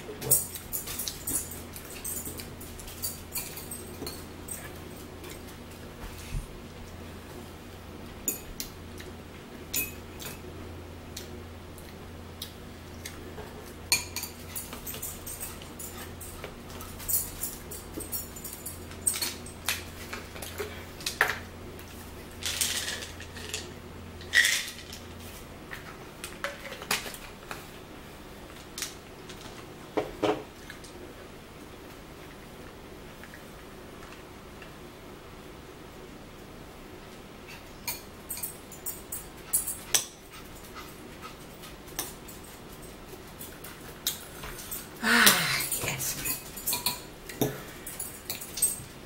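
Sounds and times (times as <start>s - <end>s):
low steady hum: 0.0s - 49.0s
forks clicking against dishes: 45.6s - 48.8s.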